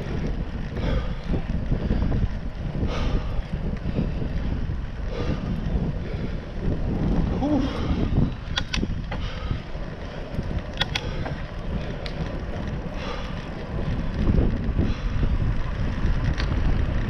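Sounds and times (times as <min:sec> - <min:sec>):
bicycle tyres rumbling on asphalt: 0:00.0 - 0:17.0
wind buffeting microphone: 0:00.0 - 0:17.0
sharp clicks or rattles: 0:08.3 - 0:09.4, 0:10.4 - 0:12.3.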